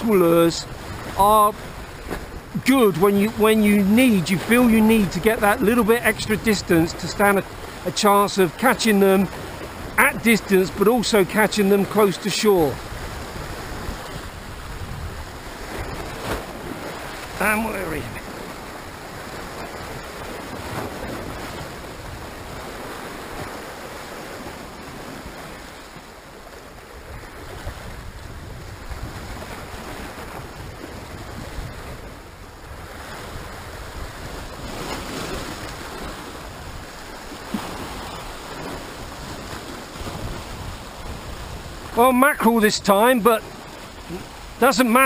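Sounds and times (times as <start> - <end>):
waves breaking against rocks: 0.0 - 45.0.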